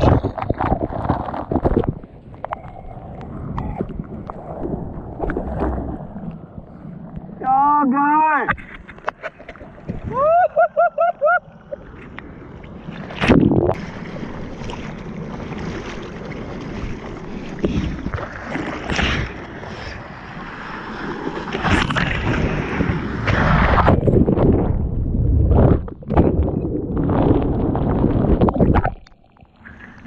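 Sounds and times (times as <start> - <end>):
surf rushing and splashing: 3.9 - 25.8.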